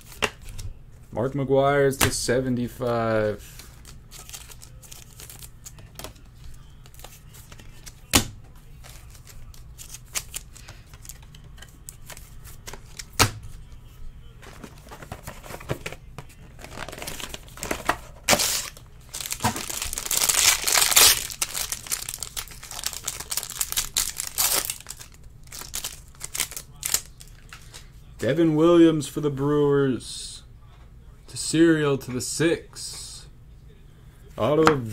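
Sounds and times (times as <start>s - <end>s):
foil wrapper crinkling and tearing: 3.5s - 6.0s, 16.6s - 27.6s.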